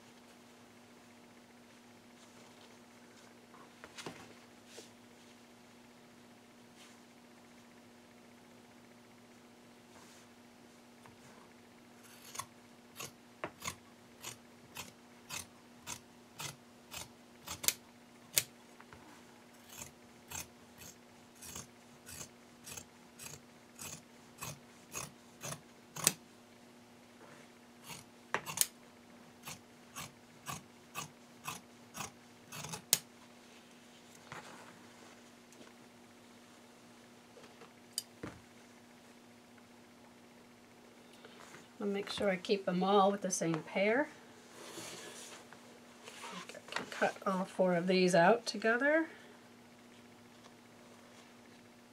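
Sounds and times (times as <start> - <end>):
scissors snipping fabric: 12.0 - 18.5, 19.6 - 26.2, 27.8 - 28.7, 29.4 - 33.0.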